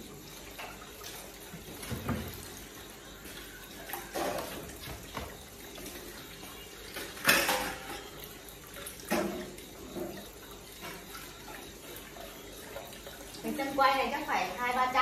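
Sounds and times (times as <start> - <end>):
tap running into metal sink: 1.6 - 2.5, 9.0 - 11.1
dishes knocking together: 7.2 - 8.1.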